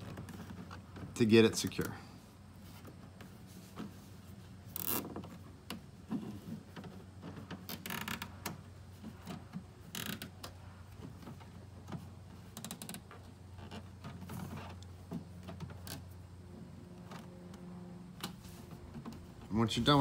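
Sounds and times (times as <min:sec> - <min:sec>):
cable ties ratcheting zip: 0:04.7 - 0:05.4, 0:07.5 - 0:08.6, 0:09.2 - 0:10.5, 0:12.4 - 0:14.9.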